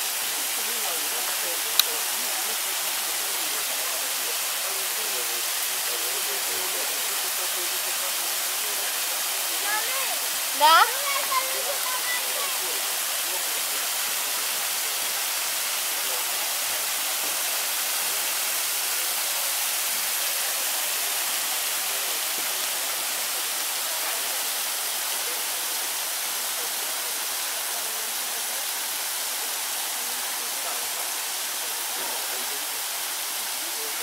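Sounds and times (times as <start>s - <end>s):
waterfall splashing into pool: 0.0s - 34.0s.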